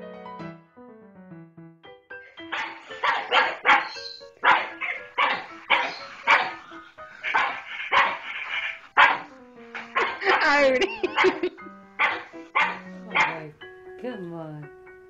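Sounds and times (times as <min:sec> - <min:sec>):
soft piano music: 0:00.0 - 0:15.0
dog barking: 0:02.5 - 0:13.5.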